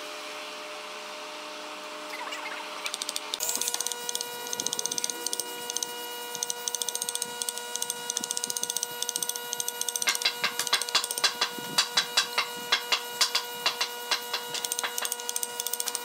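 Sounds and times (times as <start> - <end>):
steady held tone: 2.1 - 7.2.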